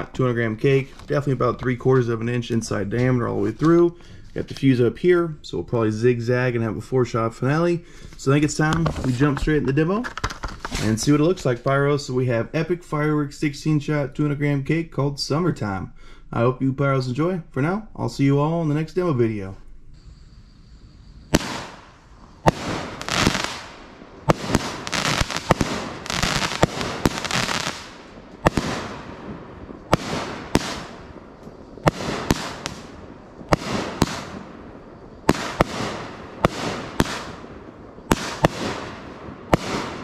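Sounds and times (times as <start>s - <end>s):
firework crackling hiss: 20.0s - 40.0s
firework bangs: 21.2s - 40.0s.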